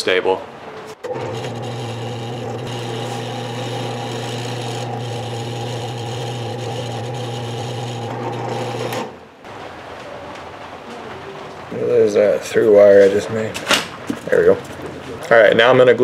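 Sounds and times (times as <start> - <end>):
drill press boring wood: 1.0 - 9.2.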